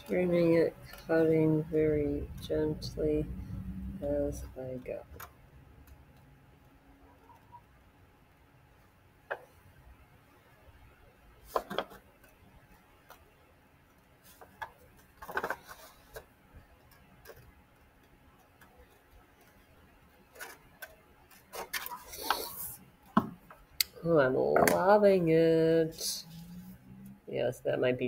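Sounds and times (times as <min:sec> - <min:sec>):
paper handling: 0:20.3 - 0:22.6.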